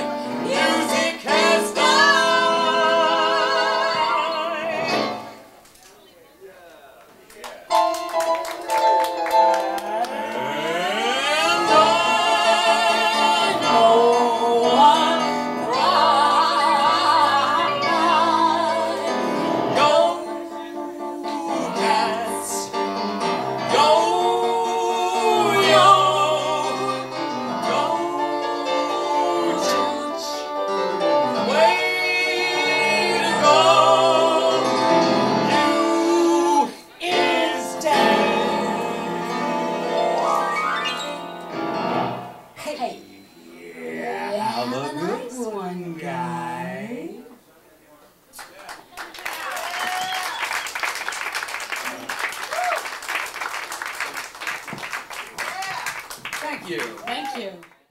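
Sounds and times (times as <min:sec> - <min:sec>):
electric keyboard: 0:07.7 - 0:43.3
woman singing with vibrato: 0:10.4 - 0:22.7, 0:35.5 - 0:39.7, 0:43.8 - 0:47.3.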